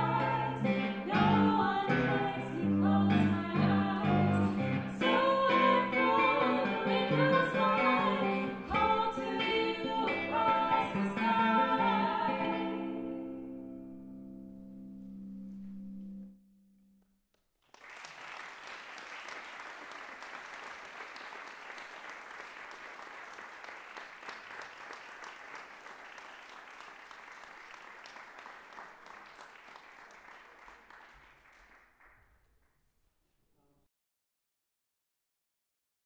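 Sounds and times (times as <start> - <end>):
audience applauding: 17.6 - 32.3.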